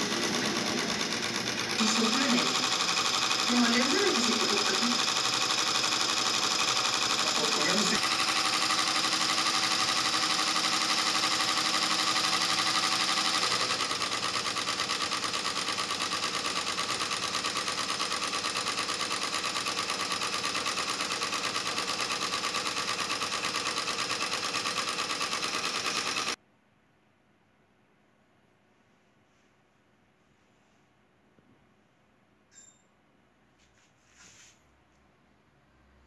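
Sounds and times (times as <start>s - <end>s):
embroidery machine stitching: 0.0s - 26.4s.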